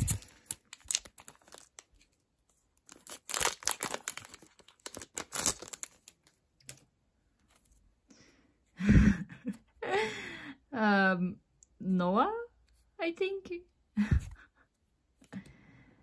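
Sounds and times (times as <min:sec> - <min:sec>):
foil pack tearing and crinkling: 0:02.9 - 0:06.2.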